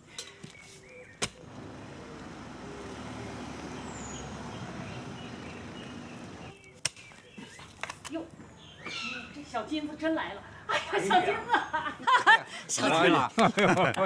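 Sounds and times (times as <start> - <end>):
car driving slowly: 1.4 - 6.6.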